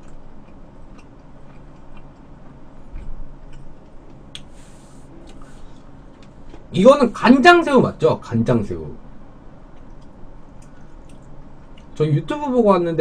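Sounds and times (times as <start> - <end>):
person chewing: 0.0 - 5.6.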